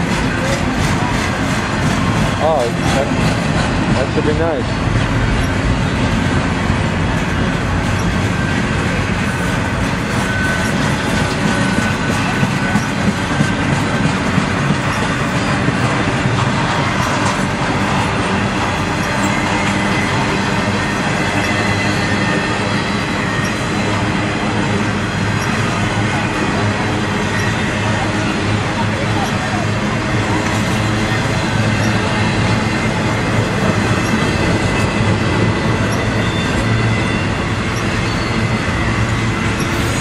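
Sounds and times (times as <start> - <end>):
freight train wheels rumbling: 0.0 - 40.0.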